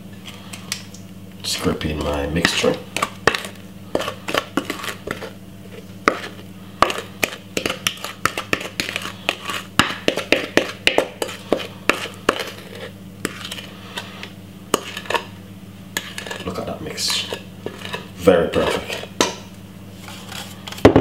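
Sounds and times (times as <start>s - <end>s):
steady low hum: 0.0s - 21.0s
spatula scraping mixing bowl: 1.5s - 20.9s
utensil tapping against bowl: 6.1s - 12.6s.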